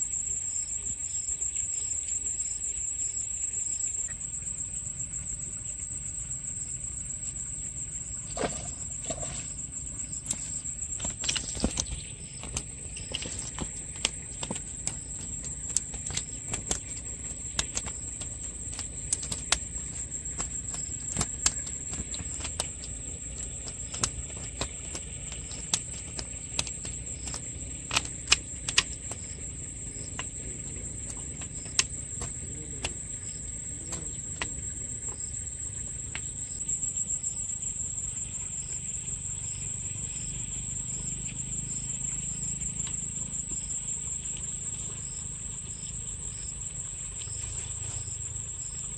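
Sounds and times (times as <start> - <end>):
sharp clicks and taps: 10.3 - 29.4.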